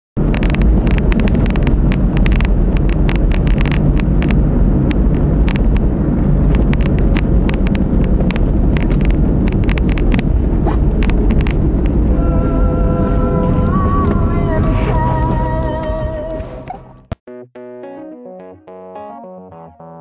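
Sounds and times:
sharp clicks: 0.2 - 12.0
road and engine rumble: 0.2 - 17.2.

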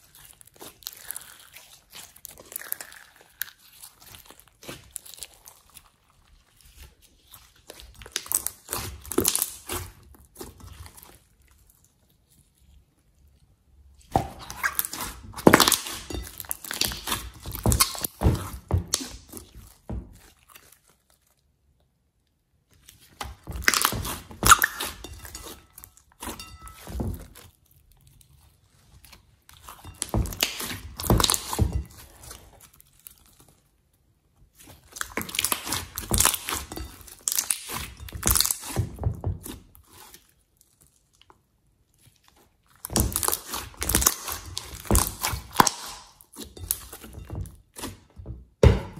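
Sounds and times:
slime crackling and popping: 0.0 - 12.8, 14.0 - 26.8, 34.5 - 48.1.

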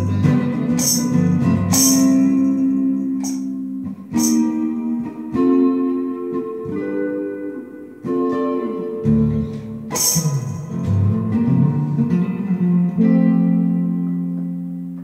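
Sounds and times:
electric guitar playing: 0.0 - 15.0
scratchy guitar strum: 0.0 - 15.0.

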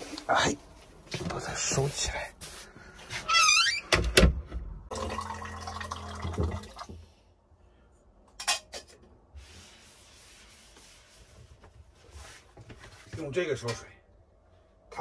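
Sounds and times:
water pouring into container: 4.9 - 7.0.

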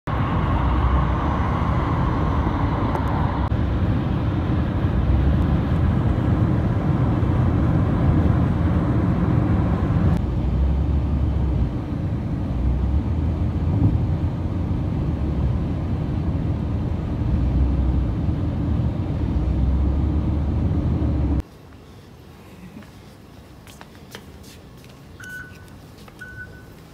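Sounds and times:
road and tyre noise: 0.0 - 26.9
vehicle engine: 0.1 - 21.4.

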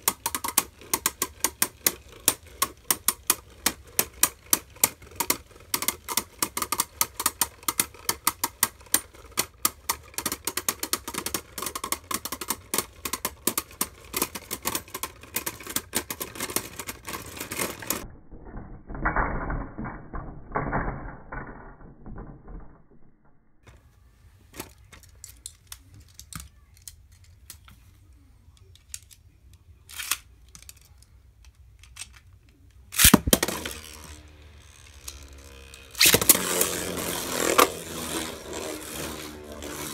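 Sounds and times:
spinning tops clashing and clicking: 32.9 - 39.9.

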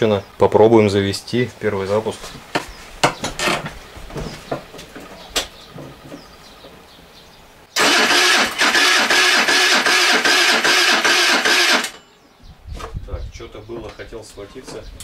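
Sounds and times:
starter motor cranking engine: 7.8 - 12.0.

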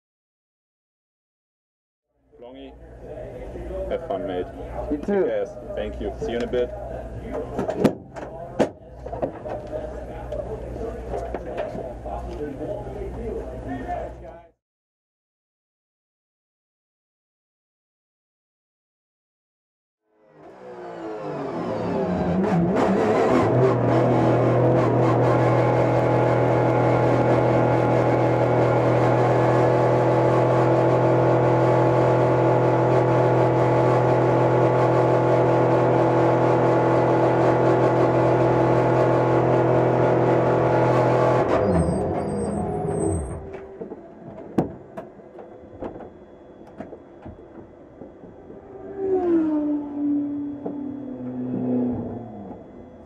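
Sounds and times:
race car engine running: 20.4 - 53.0.

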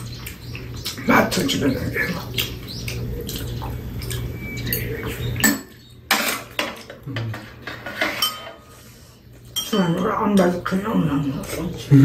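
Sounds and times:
utensils clinking against bowls: 0.0 - 8.8, 9.5 - 12.0.

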